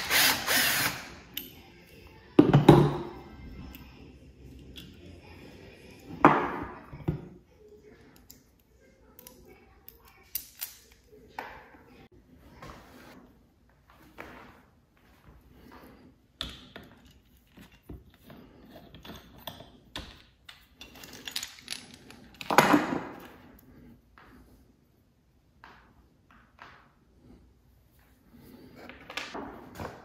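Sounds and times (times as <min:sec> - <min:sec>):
metal tools clinking on wood: 0:16.7 - 0:22.6.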